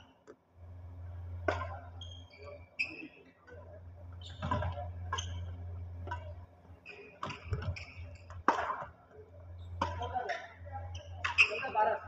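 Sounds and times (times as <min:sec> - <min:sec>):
steady low hum: 0:00.0 - 0:12.0
rackets hitting shuttlecock: 0:01.4 - 0:01.9, 0:04.3 - 0:08.9, 0:09.7 - 0:10.6
shoes squeaking on court: 0:01.6 - 0:08.8, 0:09.5 - 0:11.8.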